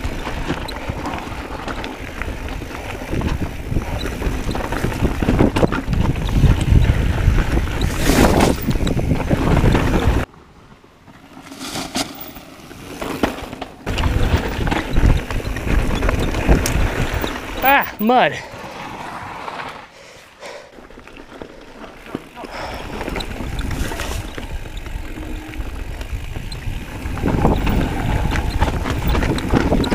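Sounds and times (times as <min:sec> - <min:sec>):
wind buffeting microphone: 0:00.0 - 0:10.3, 0:13.9 - 0:17.7, 0:22.6 - 0:29.9
bike tyres and frame rattling: 0:00.0 - 0:19.8, 0:20.7 - 0:29.9.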